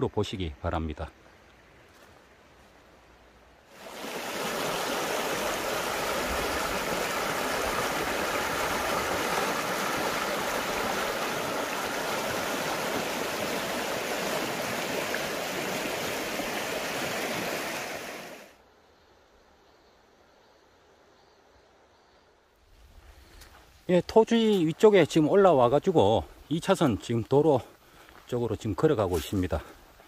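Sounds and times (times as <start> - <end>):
stream flowing over stones: 3.7 - 18.6.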